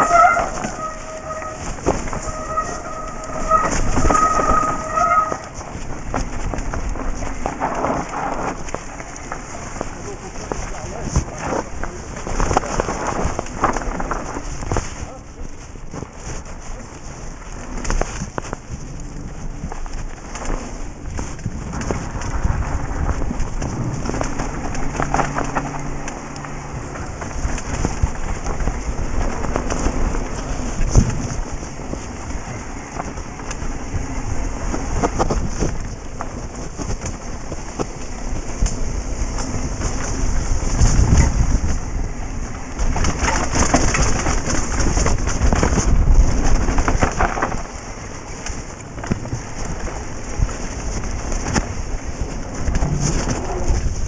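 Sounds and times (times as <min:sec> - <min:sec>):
bike knocking and rattling: 0:00.0 - 0:54.0
bike tyres on dirt and gravel: 0:00.0 - 0:54.0
wind buffeting microphone: 0:00.0 - 0:54.0.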